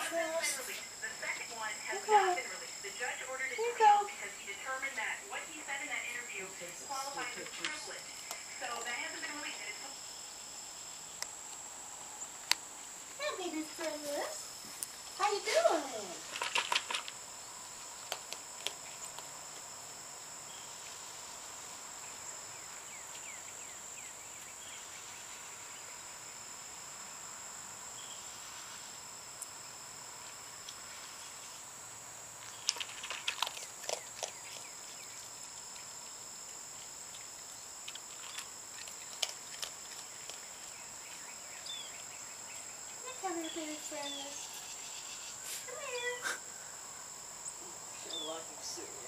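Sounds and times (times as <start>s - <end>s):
insects chirring: 0.0s - 49.0s
raccoon crunching dry kibble: 4.8s - 9.6s, 12.4s - 19.7s, 32.3s - 44.4s.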